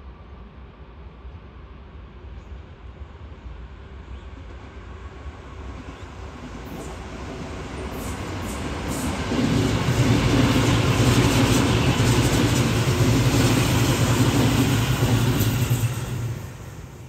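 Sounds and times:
wheels rumbling on rails: 6.6 - 17.0.

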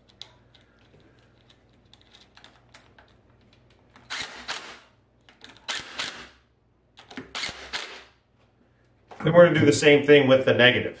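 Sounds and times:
impact driver running: 4.1 - 4.9, 5.6 - 6.4, 7.2 - 8.1.

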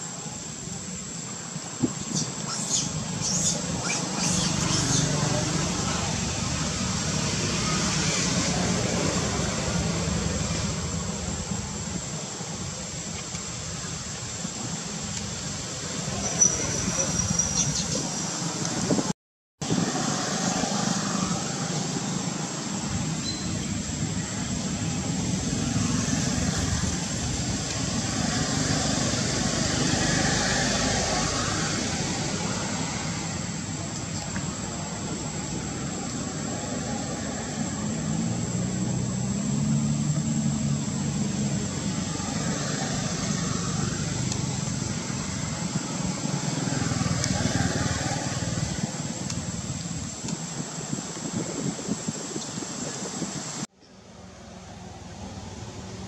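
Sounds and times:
distant vehicle hum: 19.6 - 51.8.

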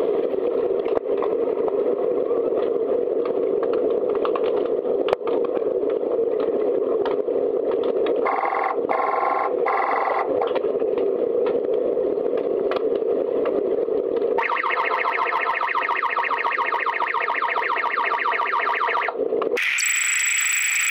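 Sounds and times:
buzzing signal: 14.4 - 20.9.

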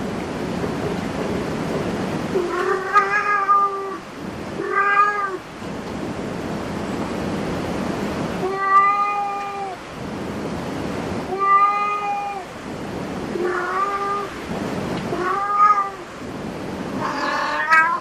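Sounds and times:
cat meowing: 2.4 - 4.0, 4.6 - 5.4, 8.4 - 9.8, 11.3 - 12.5, 13.3 - 14.4, 15.1 - 16.1, 17.0 - 18.0.

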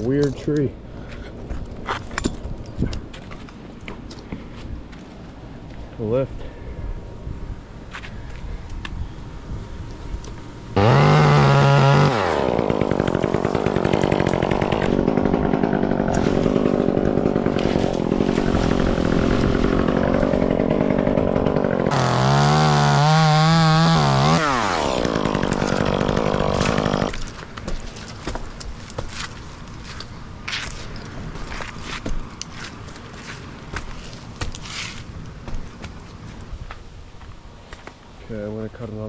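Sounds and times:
chainsaw revving: 10.8 - 27.4
chainsaw cutting wood: 10.8 - 36.0.

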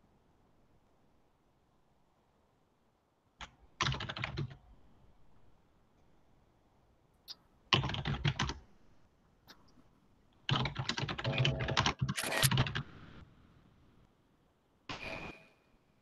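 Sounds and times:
typing on computer keyboard: 3.4 - 4.6, 7.7 - 8.6, 10.5 - 12.9.

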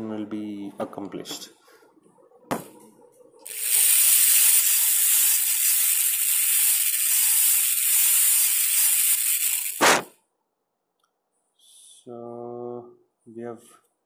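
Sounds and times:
dental drill high hiss: 3.5 - 10.1.

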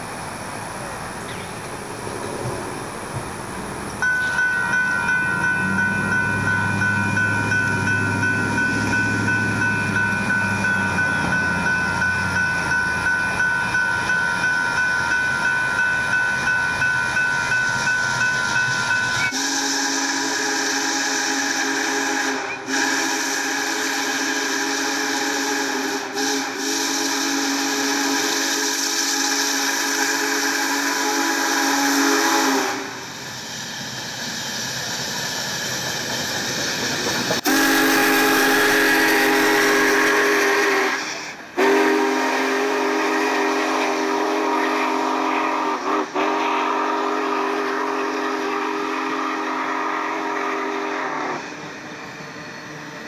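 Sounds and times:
crossing warning bell ringing: 4.0 - 19.4
steam whistle chord: 17.6 - 33.2, 37.4 - 51.6.

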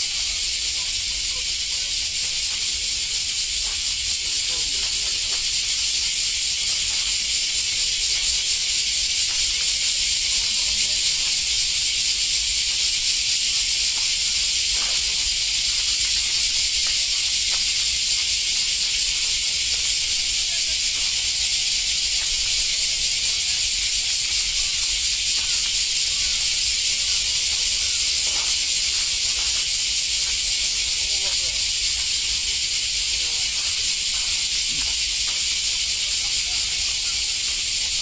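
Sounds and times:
faint voices: 0.0 - 7.3, 27.1 - 37.2
loud high-pitched hiss: 0.0 - 38.0.

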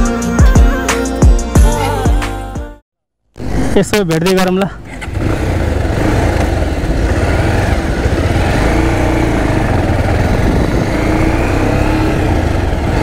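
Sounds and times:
motorcycle engine accelerating: 3.4 - 13.0
wind rumble on microphone: 9.5 - 11.4.

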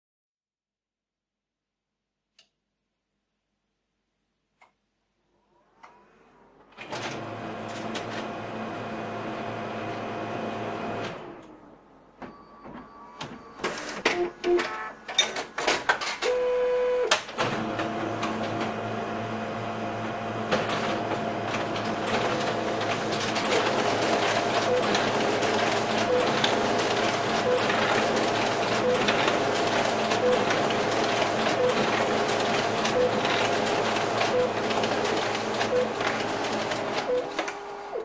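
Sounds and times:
printer clicks and whines: 12.2 - 19.2, 20.4 - 38.0.

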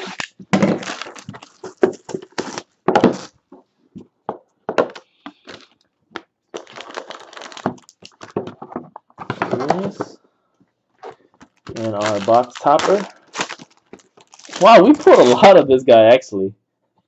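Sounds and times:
plastic shrink-wrap tearing: 0.0 - 3.3, 6.5 - 8.5, 11.0 - 15.6.

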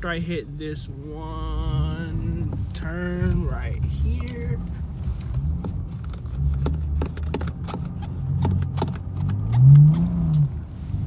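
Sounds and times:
car engine drone: 0.0 - 11.0
ice ticking on car: 2.3 - 10.5.

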